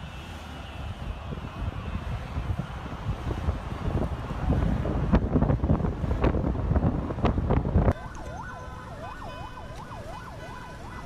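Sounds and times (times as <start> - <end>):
wind buffeting microphone: 0.8 - 11.0
emergency siren wailing: 7.9 - 11.0.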